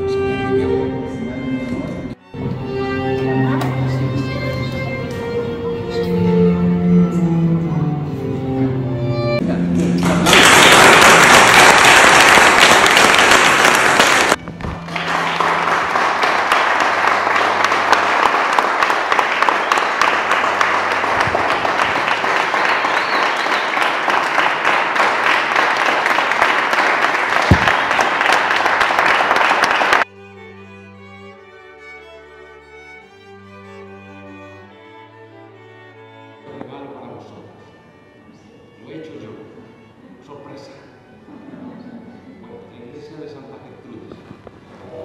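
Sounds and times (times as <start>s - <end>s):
soft music: 0.0s - 10.2s, 30.0s - 44.1s
people applauding: 9.8s - 30.1s.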